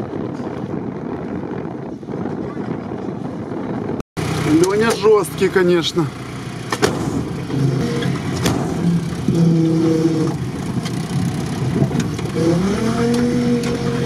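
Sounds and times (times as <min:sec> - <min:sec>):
car engine revving: 0:04.2 - 0:14.0.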